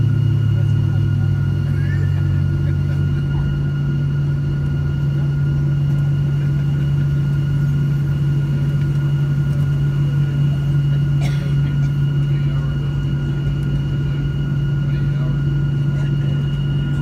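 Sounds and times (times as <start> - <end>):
high engine whine: 0.0 - 17.0
jet engines idling: 0.0 - 17.0.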